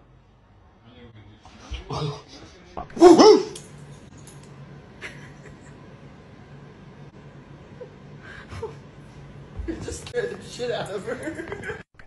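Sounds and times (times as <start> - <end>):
man imitating dog bark: 3.0 - 3.6.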